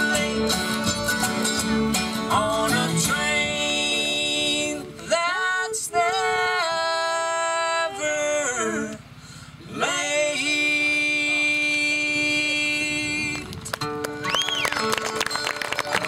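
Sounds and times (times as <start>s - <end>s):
bluegrass band playing: 0.0s - 6.6s.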